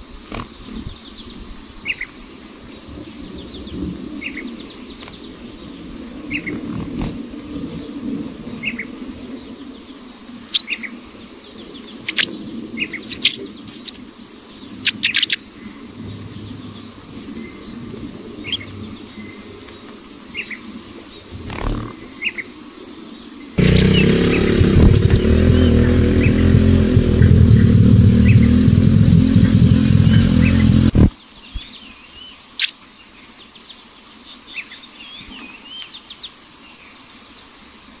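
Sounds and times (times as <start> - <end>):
insect trill: 20.8 - 23.6
low rumbling: 23.6 - 31.1.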